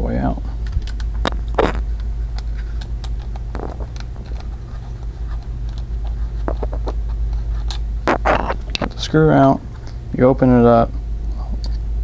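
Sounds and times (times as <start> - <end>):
steady low hum: 0.0 - 12.0
screw scratching in plastic housing: 2.5 - 8.9.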